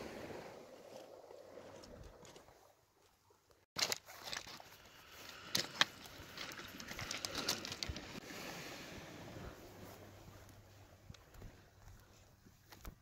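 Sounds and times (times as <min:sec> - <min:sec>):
pebbles clicking underfoot: 0:03.8 - 0:08.2.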